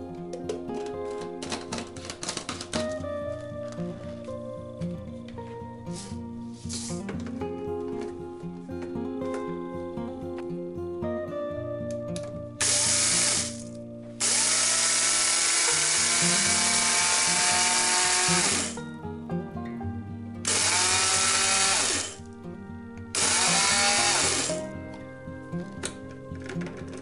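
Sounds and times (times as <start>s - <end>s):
background music: 0.0s - 27.0s
blender grinding grains: 14.2s - 18.8s, 20.5s - 22.2s, 23.2s - 24.6s
motor winding down whine: 14.2s - 18.8s, 20.5s - 22.2s, 23.2s - 24.6s.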